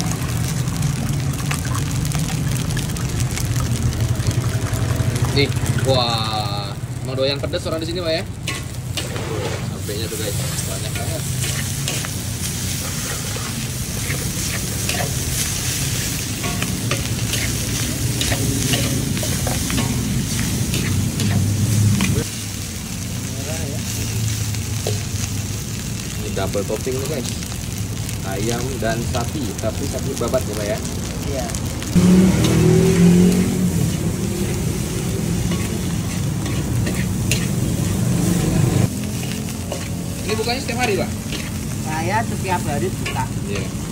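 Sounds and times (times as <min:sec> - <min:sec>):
food sizzling: 0:00.0 - 0:43.9
metal spatula scraping a wok: 0:08.4 - 0:22.2, 0:32.3 - 0:41.9.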